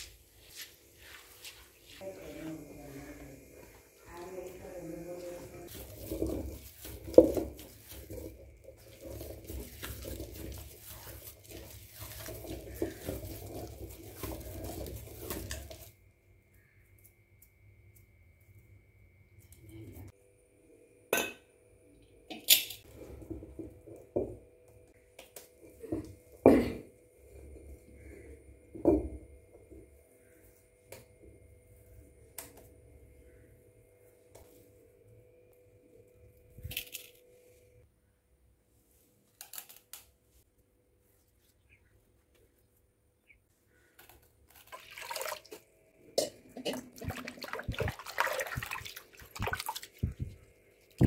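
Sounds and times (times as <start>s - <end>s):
wet batter squelches: 0.0s - 16.0s, 46.6s - 51.0s
stone grinder rumbling and scraping: 5.2s - 15.9s.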